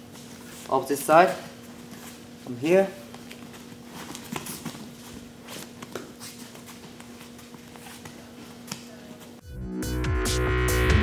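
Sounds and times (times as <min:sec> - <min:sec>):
bare feet on mats: 0:00.0 - 0:09.4
steady low hum: 0:00.0 - 0:09.4
electronic music: 0:09.4 - 0:11.0.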